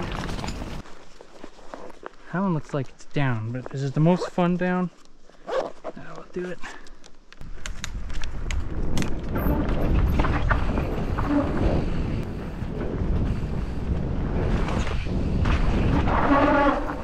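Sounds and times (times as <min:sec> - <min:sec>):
mountain bike rumbling and rattling: 0:00.0 - 0:00.9, 0:07.5 - 0:17.0
wind noise on microphone: 0:07.4 - 0:17.0.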